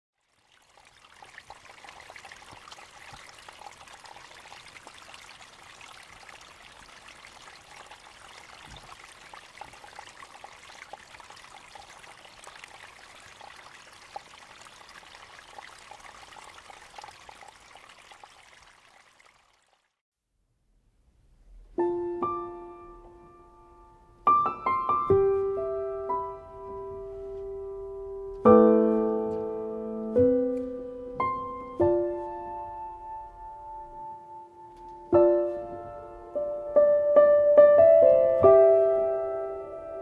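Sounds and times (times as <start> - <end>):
meltwater trickling over ice: 0.2 - 20.0.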